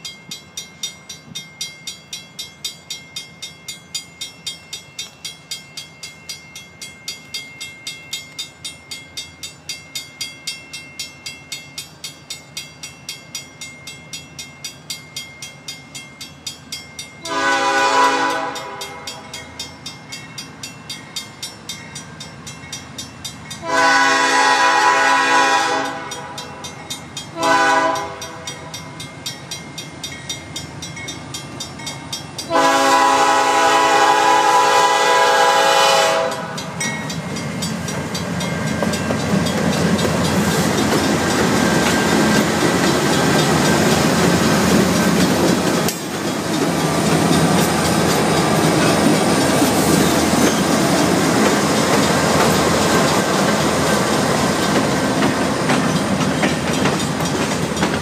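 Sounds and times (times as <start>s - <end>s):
crossing signal bell ringing: 0.0s - 58.0s
diesel locomotives rumbling: 0.0s - 58.0s
train air horn: 17.2s - 19.2s, 23.6s - 26.4s, 27.4s - 28.5s, 32.5s - 36.6s.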